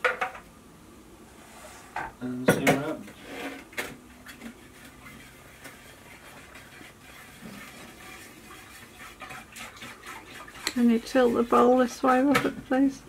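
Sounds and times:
whisk scratching in plastic bowl: 3.1 - 12.3.

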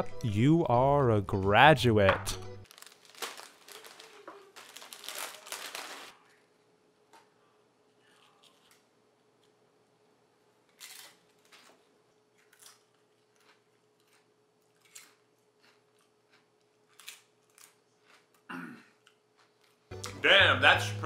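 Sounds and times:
chips crunching while chewed: 2.6 - 6.1, 10.6 - 19.8.

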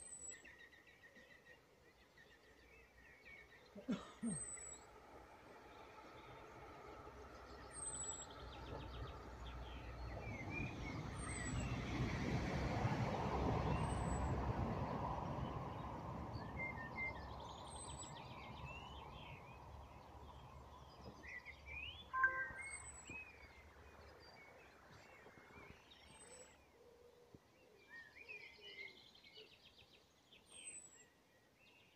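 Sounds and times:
passing vehicle rumble: 8.3 - 20.9
thin high bird call: 22.2 - 23.1.

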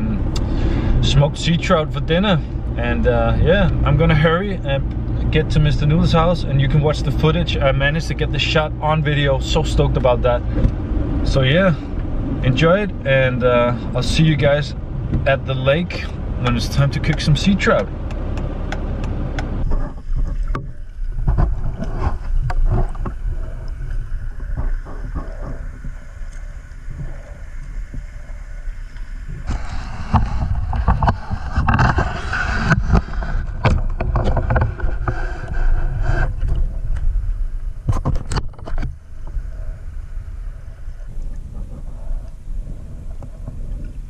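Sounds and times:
underwater low rumble: 0.0 - 44.0
underwater clicks and knocks: 17.1 - 35.3, 37.8 - 39.4.

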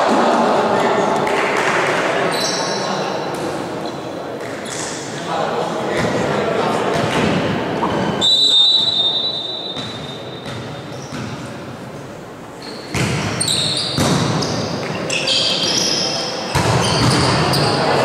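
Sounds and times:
referee's whistle blast: 8.1 - 10.2
sneakers squeaking on court: 8.8 - 11.6, 12.6 - 18.0
ball strikes: 12.9 - 13.4, 14.0 - 15.0, 16.5 - 17.6.

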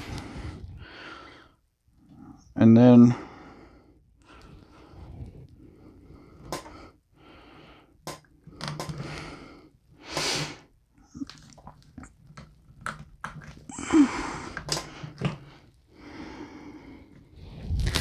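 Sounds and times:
sharp breaths through nose: 8.9 - 10.7.

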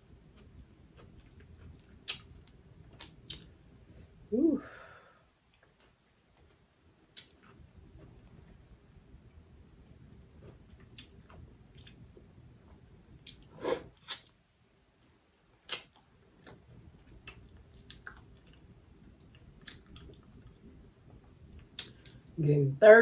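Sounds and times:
wet squishy sounds and chewing: 0.4 - 3.5, 10.7 - 12.0, 15.6 - 20.7, 21.5 - 22.4
loud wet snaps: 2.0 - 3.5, 13.2 - 14.4, 15.6 - 16.6, 19.3 - 20.6, 21.6 - 22.4.

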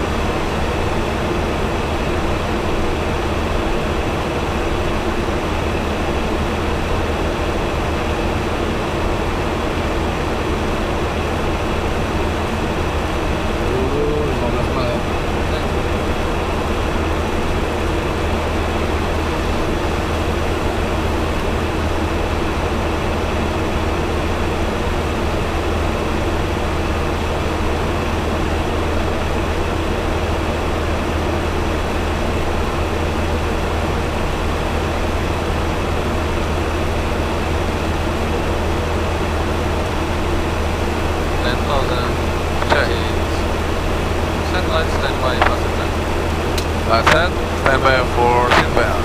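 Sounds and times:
airflow and engine noise: 0.0 - 49.0
deep even hum: 12.4 - 17.4.

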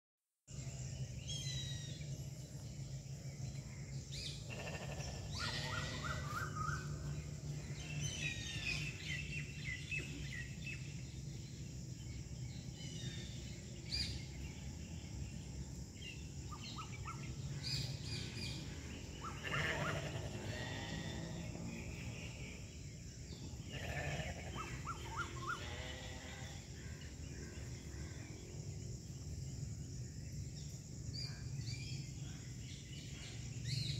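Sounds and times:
low hum and hiss: 0.5 - 33.9
birds chirping: 0.6 - 33.9.

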